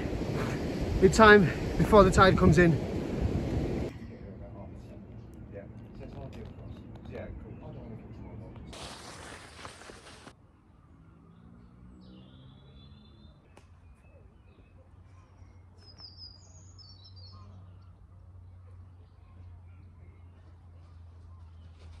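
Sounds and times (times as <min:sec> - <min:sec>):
steady low rumble: 0:00.0 - 0:06.7
faint high bird chirps: 0:10.6 - 0:22.0.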